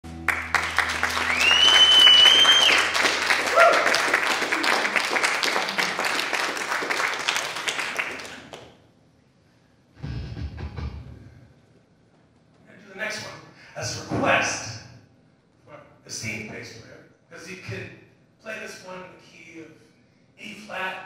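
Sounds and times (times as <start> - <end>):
audience applauding: 0.0 - 8.7
long whistle: 1.0 - 3.9.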